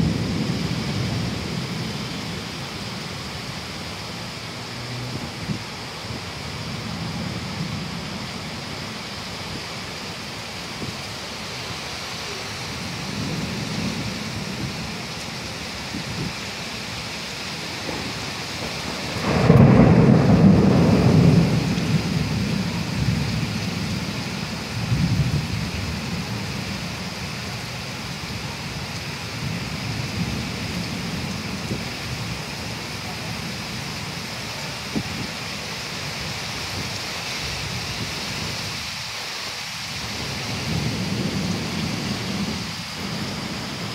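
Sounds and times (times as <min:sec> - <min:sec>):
thunder rumbling: 0:00.0 - 0:03.1, 0:17.7 - 0:26.9, 0:40.2 - 0:43.9
heavy rain pouring: 0:00.0 - 0:43.9.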